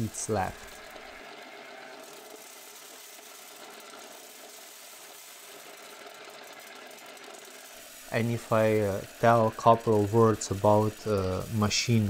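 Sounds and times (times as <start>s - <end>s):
corn sheller running: 0.0s - 12.0s.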